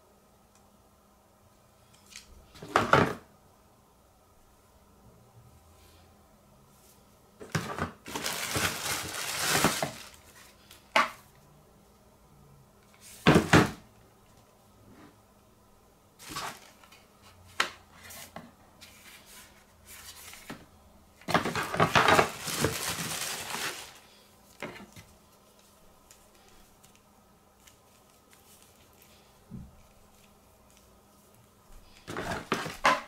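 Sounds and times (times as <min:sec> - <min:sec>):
scraping and rustling: 0:07.4 - 0:10.8, 0:21.2 - 0:27.0, 0:27.6 - 0:33.0.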